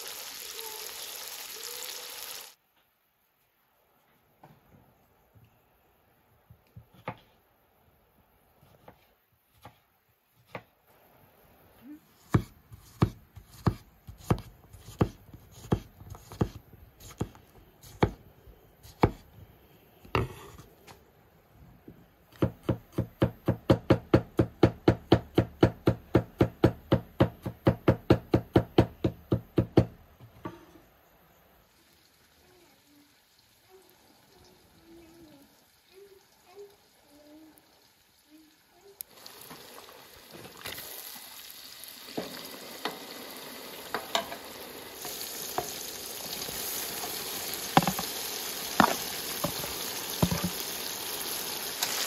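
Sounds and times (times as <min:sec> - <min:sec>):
knife chopping on wooden board: 0:12.3 - 0:18.2, 0:18.9 - 0:19.2, 0:47.8 - 0:48.1.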